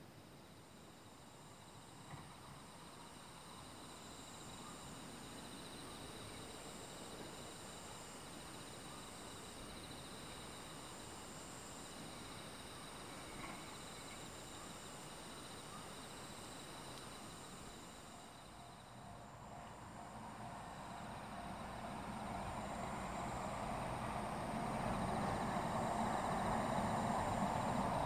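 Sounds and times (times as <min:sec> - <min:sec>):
low background hiss: 0:00.0 - 0:28.0
night insects trilling: 0:00.2 - 0:28.0.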